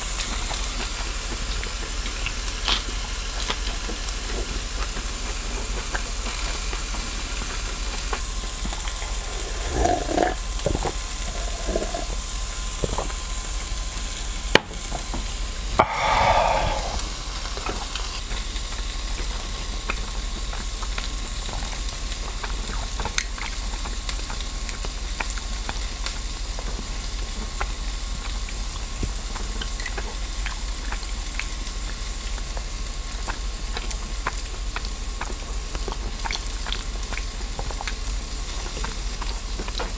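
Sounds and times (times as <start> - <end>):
meat sizzling on a grill: 0.0 - 39.9.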